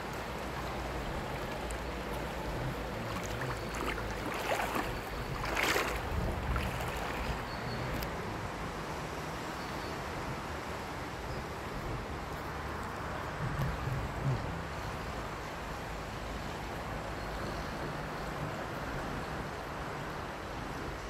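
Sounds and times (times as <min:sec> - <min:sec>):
moving water: 0:00.0 - 0:21.0
wind on microphone: 0:00.8 - 0:08.6, 0:13.1 - 0:15.3.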